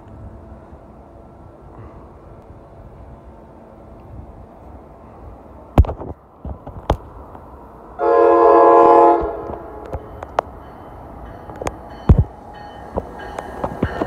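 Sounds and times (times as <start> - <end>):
train horn blast: 8.0 - 10.0.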